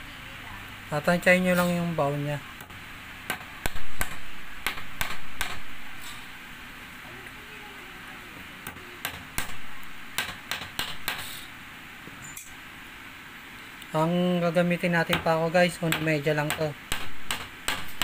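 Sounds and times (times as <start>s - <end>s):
hammer driving nail into wood: 3.3s - 5.7s, 8.7s - 11.4s, 15.9s - 18.0s.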